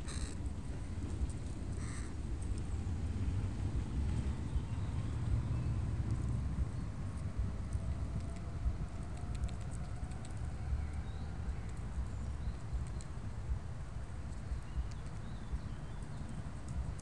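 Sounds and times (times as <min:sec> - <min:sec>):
distant bird chirps: 0:00.0 - 0:00.4
wind rumble on microphone: 0:00.0 - 0:17.0
faint small clicks: 0:09.2 - 0:10.5, 0:12.8 - 0:13.2, 0:14.3 - 0:15.3.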